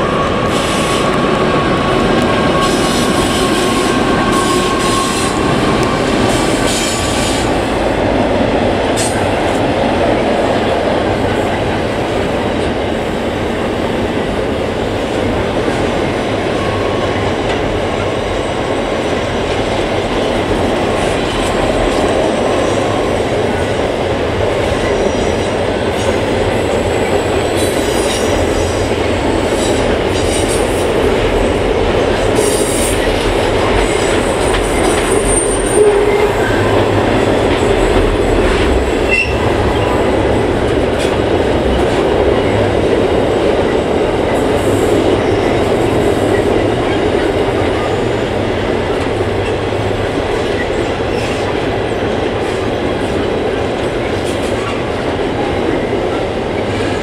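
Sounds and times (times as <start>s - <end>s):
freight train rumbling over bridge: 0.0s - 57.0s
wheel squeal: 39.1s - 39.4s.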